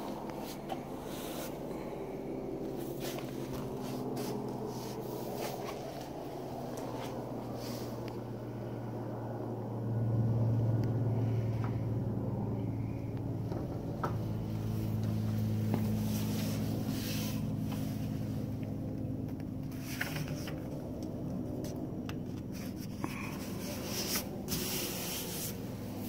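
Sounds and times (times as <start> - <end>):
low machine hum: 0.0 - 26.0
hand rubbing rubbery coating: 2.8 - 6.0, 22.4 - 26.0.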